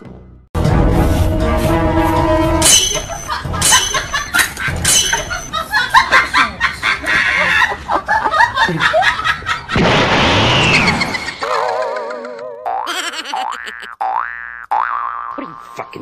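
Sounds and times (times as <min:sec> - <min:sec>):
laughter: 0:03.0 - 0:09.8.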